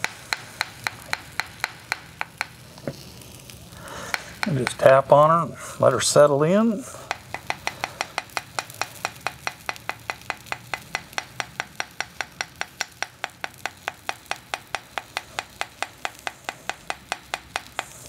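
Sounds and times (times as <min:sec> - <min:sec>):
small hammer tapping on metal: 0:00.0 - 0:02.6, 0:07.1 - 0:18.0.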